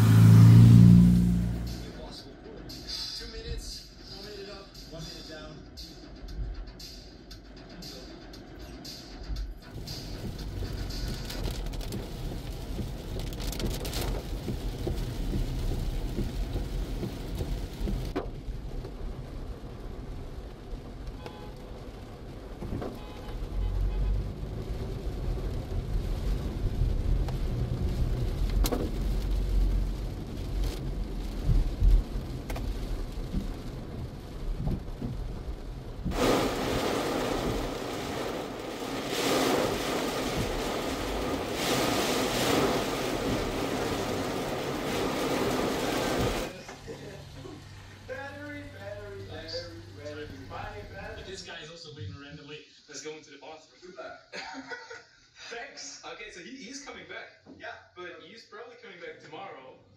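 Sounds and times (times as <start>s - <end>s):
car driving on wet road: 0.0s - 3.3s, 7.4s - 51.6s
rain on car windshield: 9.4s - 51.4s.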